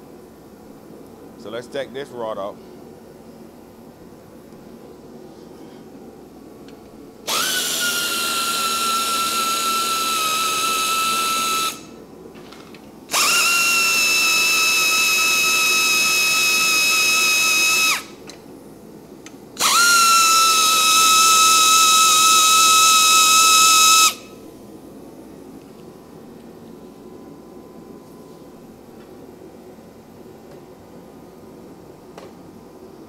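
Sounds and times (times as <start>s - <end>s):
power drill whining: 7.3s - 11.8s, 13.1s - 18.1s, 19.6s - 24.3s.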